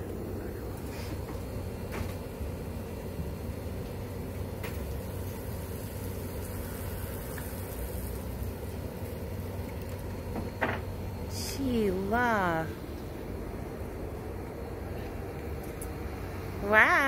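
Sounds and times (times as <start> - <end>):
steady low rumble: 8.4 - 17.0.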